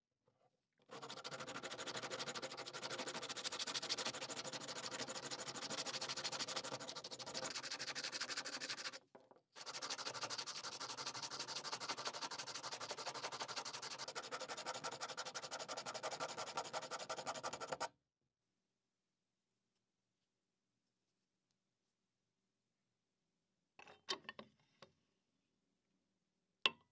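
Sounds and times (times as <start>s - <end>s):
sandpaper scraping wood: 0.9s - 9.0s.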